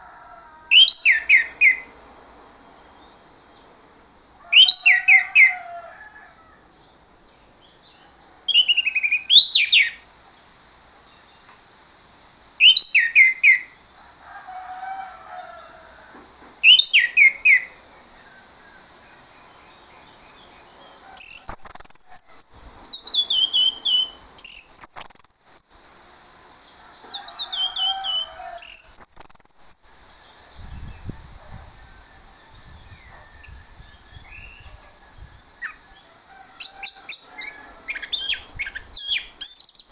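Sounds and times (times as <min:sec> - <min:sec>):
thrush singing whistled notes: 0:08.5 - 0:10.0, 0:12.6 - 0:13.8, 0:16.6 - 0:17.8, 0:21.2 - 0:25.8, 0:27.1 - 0:31.2, 0:32.2 - 0:39.9.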